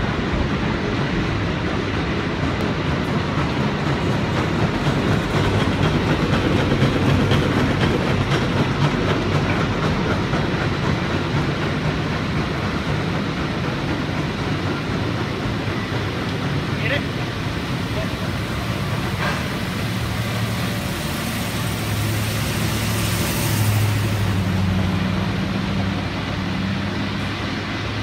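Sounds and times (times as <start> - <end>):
cable car rattling and rumbling: 0.0 - 28.0.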